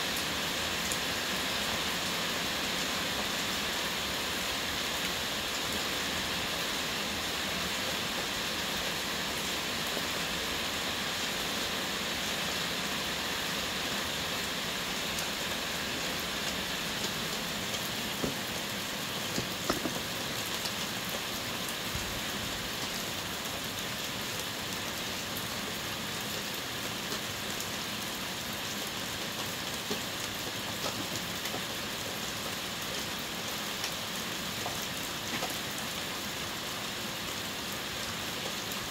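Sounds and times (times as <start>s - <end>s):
heavy rain falling: 0.0s - 38.9s.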